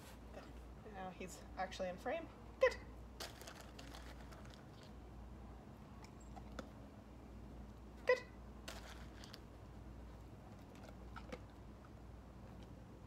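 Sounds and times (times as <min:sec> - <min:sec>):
dog chewing kibble: 0:03.2 - 0:05.2, 0:05.9 - 0:06.9, 0:08.7 - 0:12.9.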